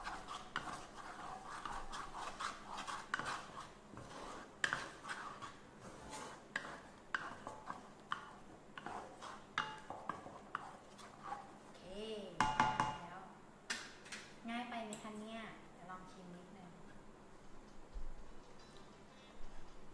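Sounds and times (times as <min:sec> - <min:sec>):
wooden spatula scraping pan: 0:00.0 - 0:11.6
spatula knocking against pan: 0:09.6 - 0:10.3, 0:12.4 - 0:13.1.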